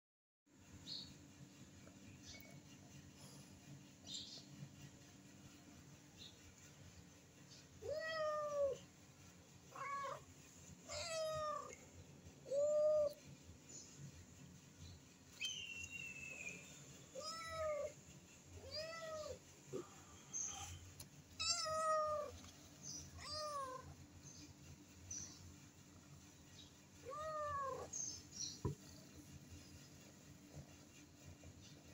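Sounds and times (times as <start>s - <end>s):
cat meowing: 7.8s - 8.8s, 9.7s - 10.3s, 10.9s - 11.8s, 12.4s - 13.2s, 17.2s - 18.0s, 18.6s - 19.4s, 21.4s - 22.4s, 23.2s - 23.9s, 27.0s - 27.9s.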